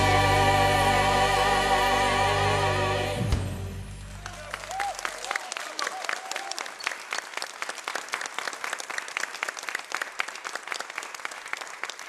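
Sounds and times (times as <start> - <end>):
audience applauding: 3.8 - 12.0.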